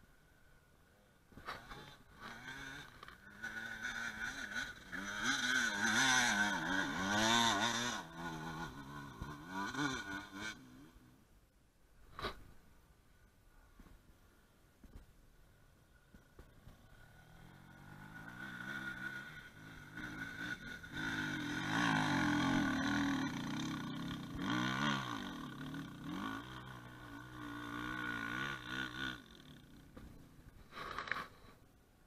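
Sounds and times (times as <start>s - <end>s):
motorcycle engine revving: 1.4s - 11.1s, 16.1s - 31.5s.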